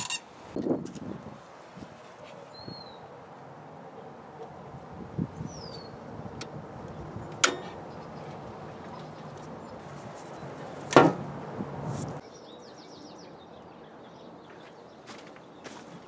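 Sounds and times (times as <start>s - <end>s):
faint outdoor background: 0.0s - 16.0s
bird chirps: 2.4s - 3.1s, 5.4s - 6.0s.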